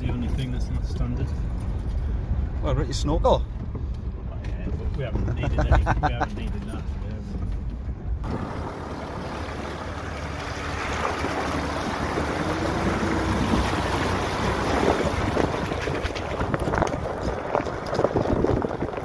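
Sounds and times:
deep rumble: 0.0 - 19.0
wind buffeting microphone: 7.7 - 19.0
tyre splashing through mud: 8.2 - 19.0.

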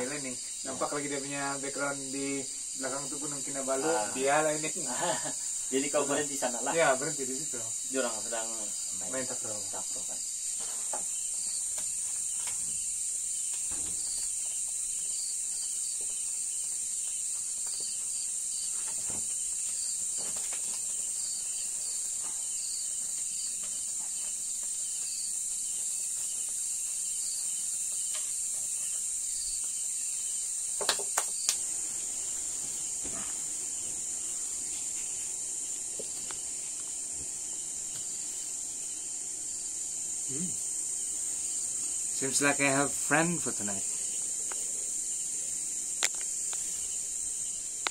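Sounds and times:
crickets trilling: 0.0 - 47.9
pulsing insect chirp: 0.0 - 47.9
faint crackles: 40.2 - 47.9.

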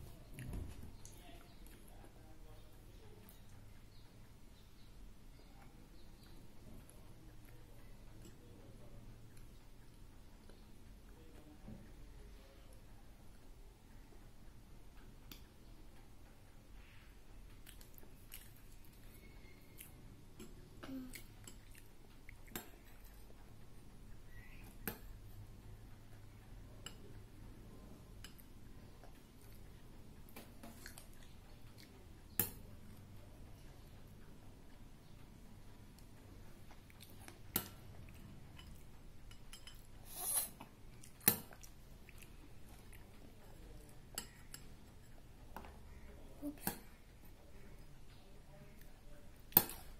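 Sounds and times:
soft chewing: 0.0 - 49.9.

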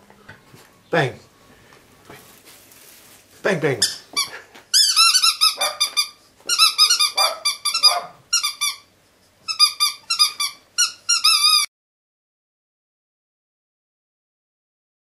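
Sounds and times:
ferret squeaking: 3.8 - 8.9, 9.5 - 11.7.

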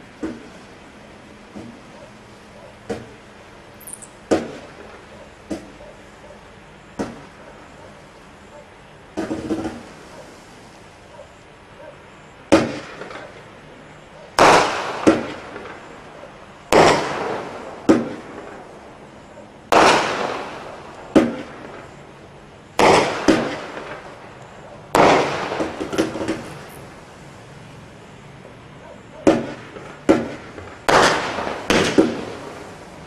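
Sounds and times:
firework bangs: 3.8 - 5.8, 9.1 - 10.3, 12.5 - 13.5, 14.4 - 16.1, 16.7 - 18.8, 19.7 - 22.0, 22.7 - 26.8, 29.2 - 33.0.

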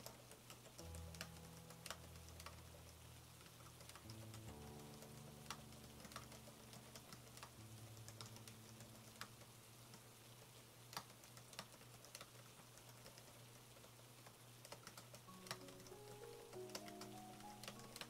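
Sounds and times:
keyboard key clicks: 14.6 - 18.0.

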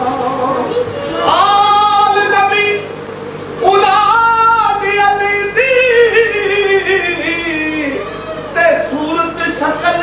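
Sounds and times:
high solo voice singing: 0.0 - 2.9, 3.6 - 10.0.

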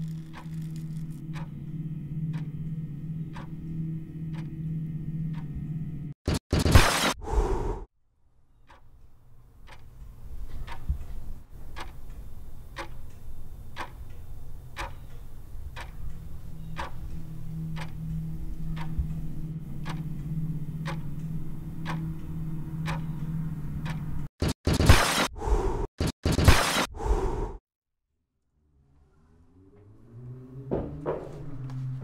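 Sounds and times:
clock ticking: 0.0 - 4.6, 9.6 - 24.8
low steady hum: 0.0 - 6.1, 11.2 - 24.3.

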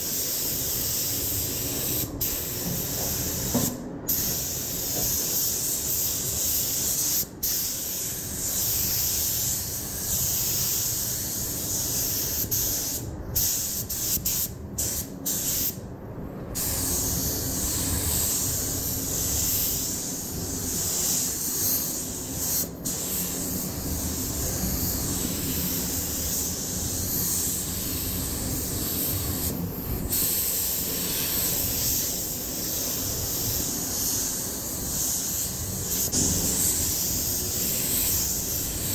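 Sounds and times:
paint spray gun hissing: 0.0 - 15.8, 16.6 - 38.9.

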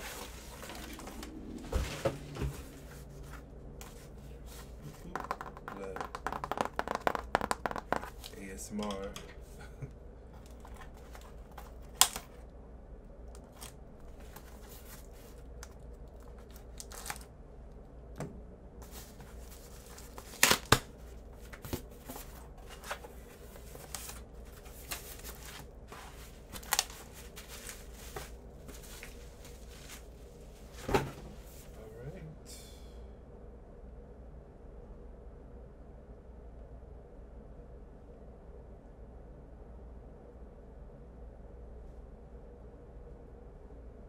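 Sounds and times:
cardboard crackling and tearing: 16.2 - 17.3, 19.0 - 30.1
sharp cardboard snaps: 20.2 - 20.9.

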